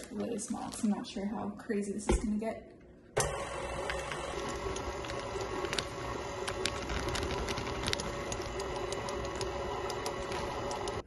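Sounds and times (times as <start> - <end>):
electric mixer running: 3.2 - 11.0.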